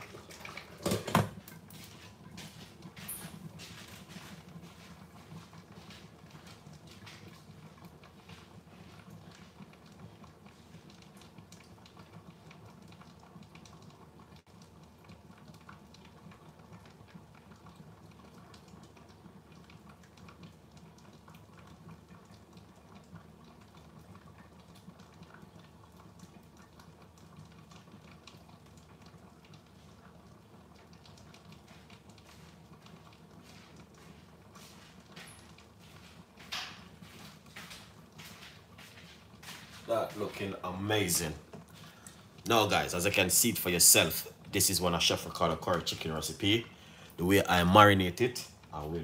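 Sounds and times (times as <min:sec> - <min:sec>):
sauce bubbling under a lid: 0:00.0 - 0:49.0.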